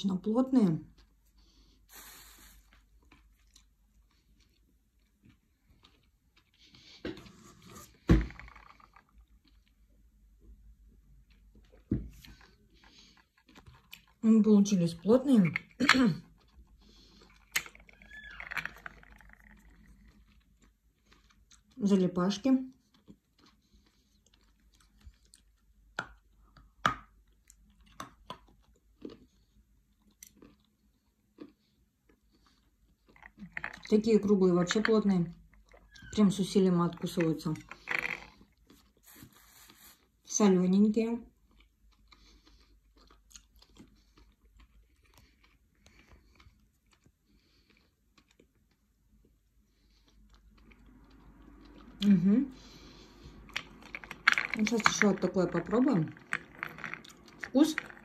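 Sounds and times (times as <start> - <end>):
person chewing crunchy food: 2.7 - 10.0, 10.8 - 14.2, 15.6 - 21.8, 22.7 - 33.9, 41.3 - 54.8, 55.8 - 58.0.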